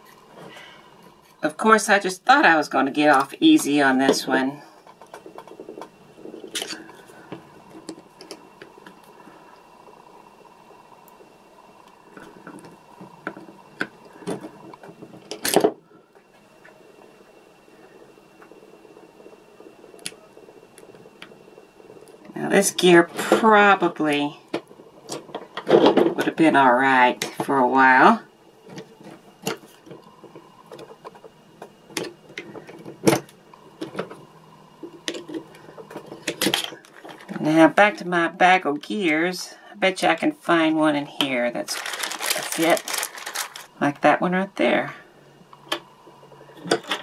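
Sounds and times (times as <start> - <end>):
plastic gear clicking and creaking: 41.7 - 43.7
rasping crackle: 41.7 - 43.8.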